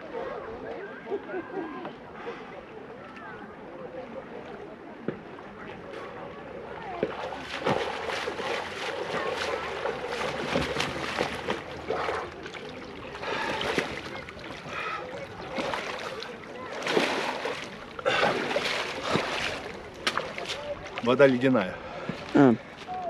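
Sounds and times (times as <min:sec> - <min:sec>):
water splashing: 0:05.2 - 0:23.0.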